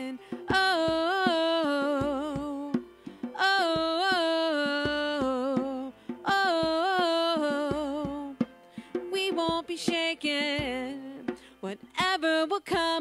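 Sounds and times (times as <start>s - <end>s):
person singing with vibrato: 0.0s - 8.4s.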